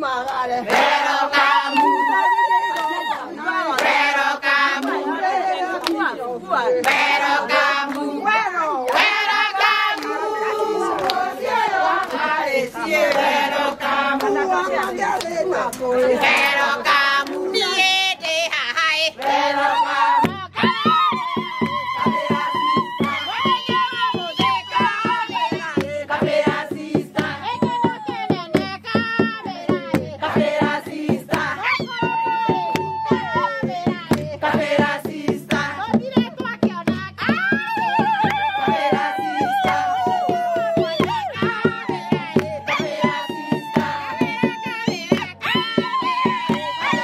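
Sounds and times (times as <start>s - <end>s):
women singing a hymn: 0.0s - 47.0s
hand claps: 2.6s - 3.1s, 3.7s - 5.1s, 5.7s - 6.2s, 6.8s - 8.2s, 8.8s - 17.5s, 18.7s - 19.5s, 20.2s - 47.0s
steady beat: 19.4s - 47.0s.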